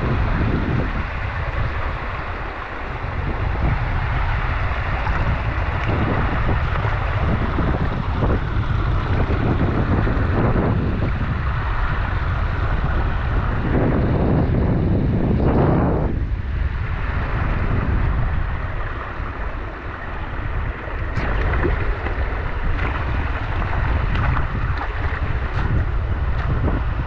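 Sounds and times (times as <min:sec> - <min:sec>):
creek water rushing: 0:00.0 - 0:27.0
wind buffeting microphone: 0:00.0 - 0:27.0.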